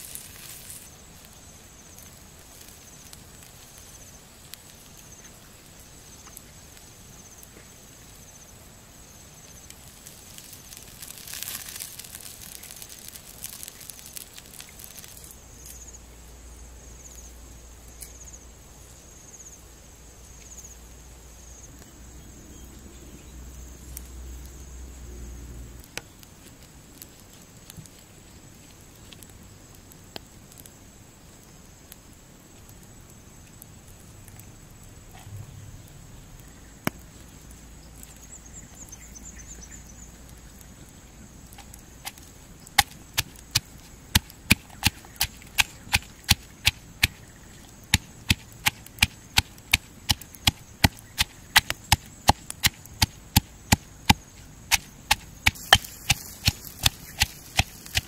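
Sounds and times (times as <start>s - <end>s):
stone pestle pounding in mortar: 48.0s - 58.0s.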